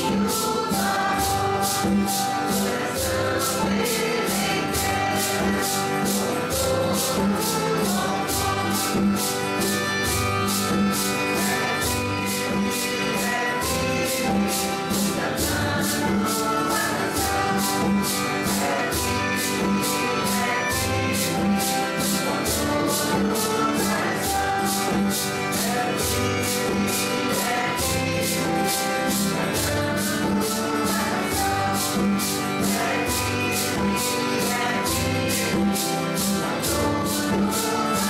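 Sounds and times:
group singing a hymn: 0.0s - 38.0s
guitar accompaniment: 0.0s - 38.0s
maracas shaking: 0.0s - 38.0s.

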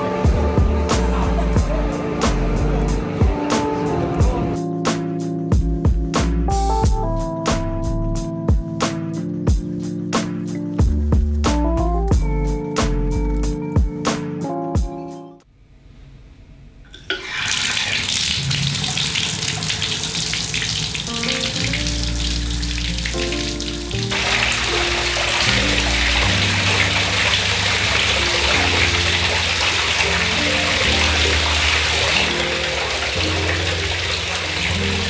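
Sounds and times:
background music: 0.0s - 15.4s, 20.1s - 35.0s
water splashing into bathtub: 16.9s - 35.0s.

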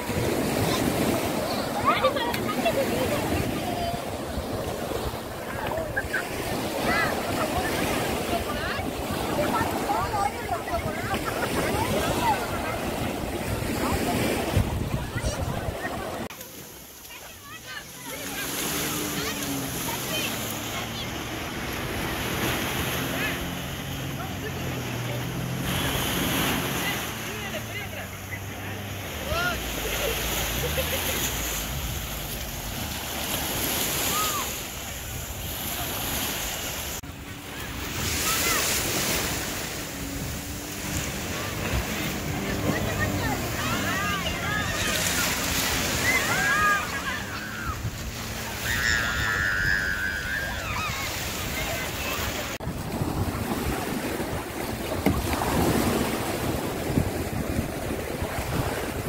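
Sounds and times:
wind buffeting microphone: 0.0s - 16.3s, 37.0s - 59.0s
surf washing on shore: 0.0s - 59.0s.

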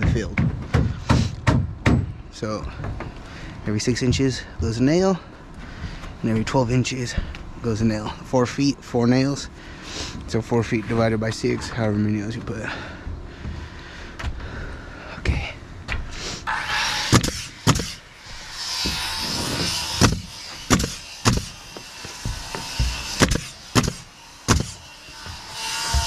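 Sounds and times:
nails driven into plywood: 17.1s - 18.0s, 20.0s - 24.8s.

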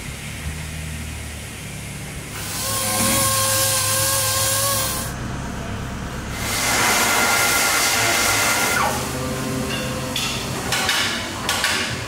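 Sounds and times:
power tool whirring: 2.4s - 5.1s.

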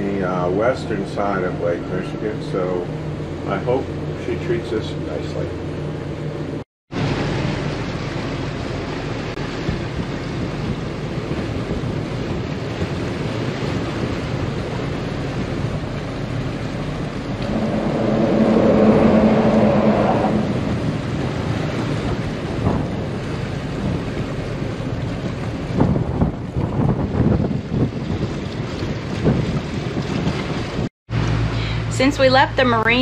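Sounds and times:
boat engine rumble: 0.0s - 33.0s
water rushing along hull: 0.0s - 33.0s
wind buffeting microphone: 5.6s - 33.0s
loud hum: 17.1s - 21.6s.

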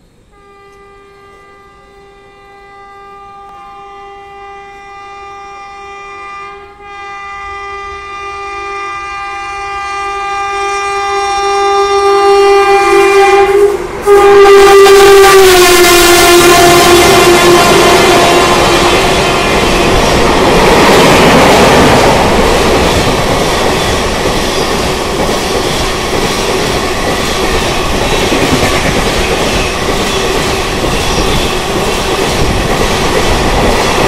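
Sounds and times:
train horn blast: 0.3s - 20.2s
train wheel noise: 9.0s - 34.0s.

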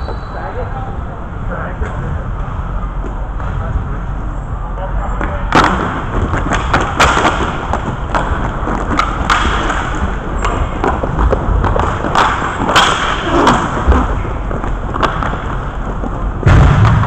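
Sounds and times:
hockey sticks and puck clacking: 5.2s - 16.3s
skate wheels rolling on floor: 5.2s - 16.4s.

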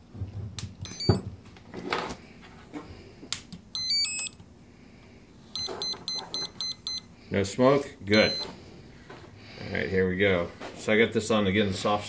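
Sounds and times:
electronic beep tones: 0.8s - 1.2s, 3.8s - 4.4s, 5.6s - 7.1s, 8.1s - 8.5s.

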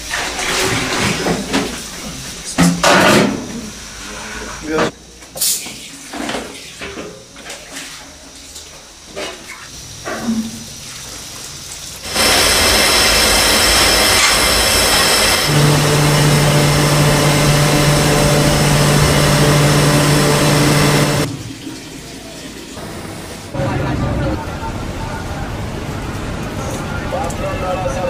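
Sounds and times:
gas burner rushing: 12.0s - 21.3s.

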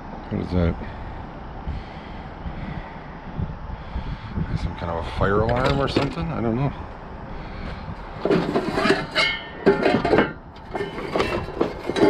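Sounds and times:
lumber and metal scraping in dumpster: 8.2s - 12.0s
metallic ring: 8.6s - 12.0s.

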